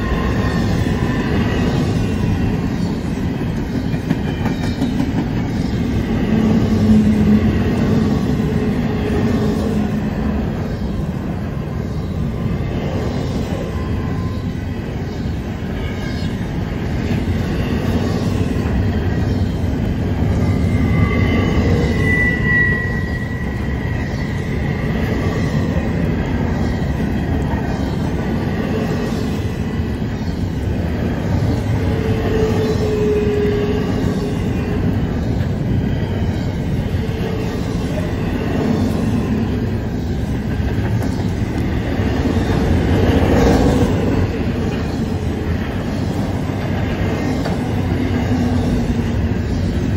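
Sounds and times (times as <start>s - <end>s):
freight train wheels clattering: 0.0s - 10.1s
high wheel squeal: 20.2s - 25.5s
low wheel squeal: 20.5s - 24.2s.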